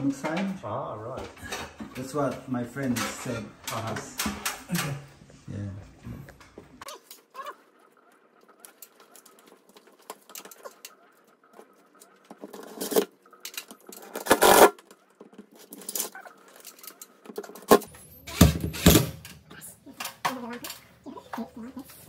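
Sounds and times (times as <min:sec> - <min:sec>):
plastic scratching and clicking: 0:06.3 - 0:17.9.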